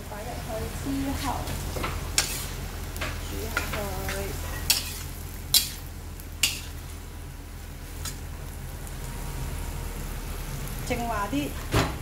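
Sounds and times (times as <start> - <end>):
ladle stirring noodles in wok: 0.3 - 7.1.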